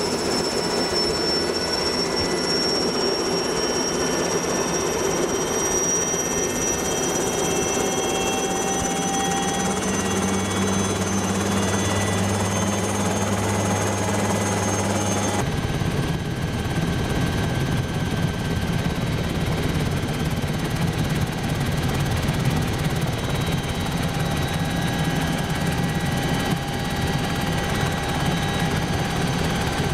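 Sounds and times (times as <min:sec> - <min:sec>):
helicopter engine and rotor drone: 0:00.0 - 0:29.9.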